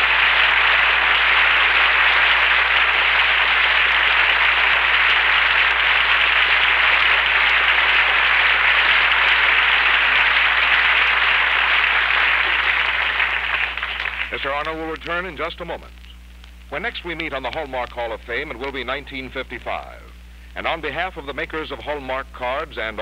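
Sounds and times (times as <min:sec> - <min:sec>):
audience applauding: 0:00.0 - 0:15.0
faint low hum: 0:00.0 - 0:23.0.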